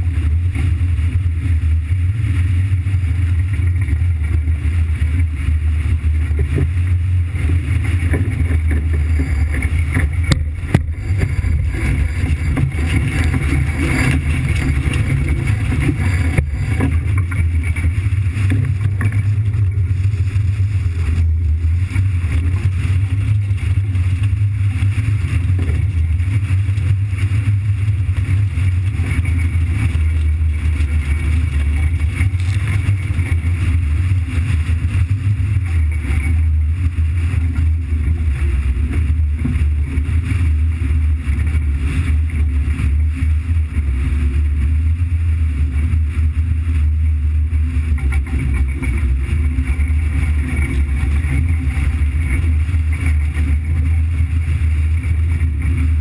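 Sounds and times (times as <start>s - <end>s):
vehicle engine rumbling: 0.0s - 56.0s.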